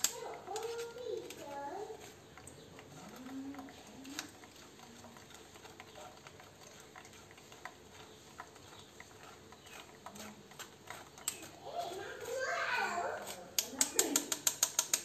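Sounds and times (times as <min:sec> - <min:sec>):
spoon clicking on mesh sieve: 0:00.0 - 0:01.4, 0:13.2 - 0:15.0.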